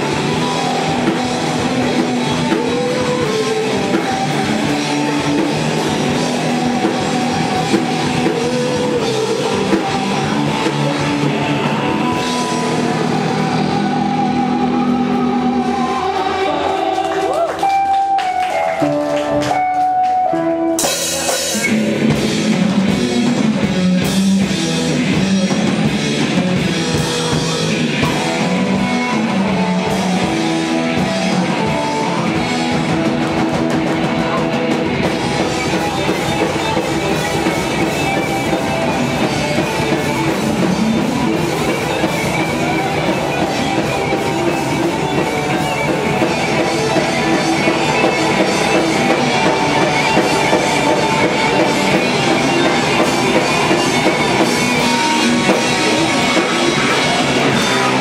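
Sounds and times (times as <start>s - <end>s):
metal band playing live: 0.0s - 58.0s.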